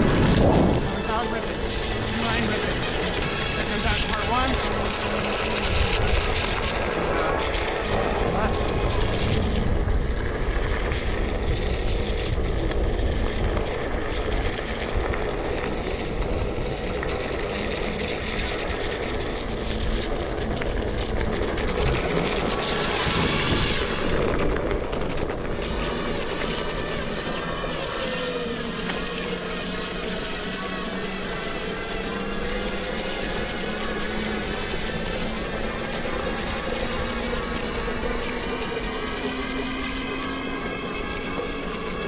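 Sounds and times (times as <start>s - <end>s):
wind rushing over microphone: 0.0s - 28.7s
electric motor whine: 0.0s - 42.0s.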